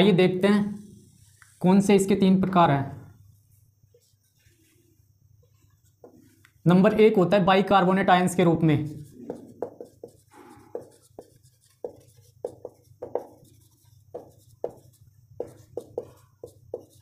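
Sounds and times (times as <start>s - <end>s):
marker squeaking on whiteboard: 8.8s - 17.0s.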